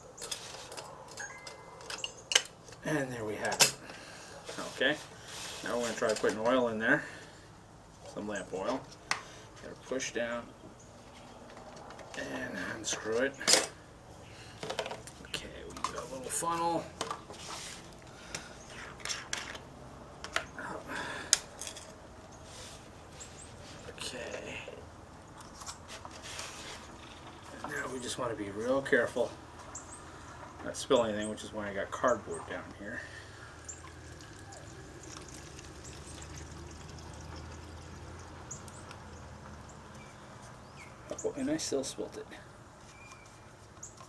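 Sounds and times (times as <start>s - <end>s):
oil pouring through a funnel: 33.2s - 39.2s.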